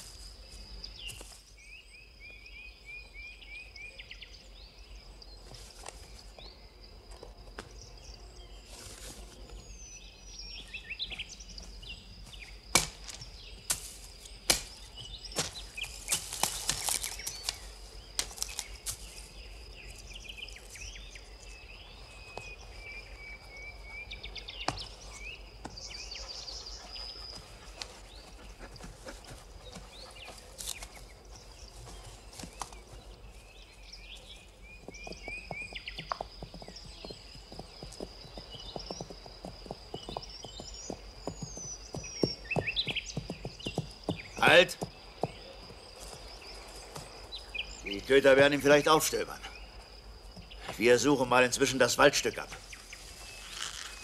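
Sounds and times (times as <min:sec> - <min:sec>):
birds chirping: 0:00.0 - 0:54.0
leaves rustling: 0:08.6 - 0:09.7, 0:12.7 - 0:21.0, 0:51.9 - 0:54.0
branches snapping: 0:12.7 - 0:19.0
horses' hoofbeats: 0:25.6 - 0:33.2, 0:34.2 - 0:48.1.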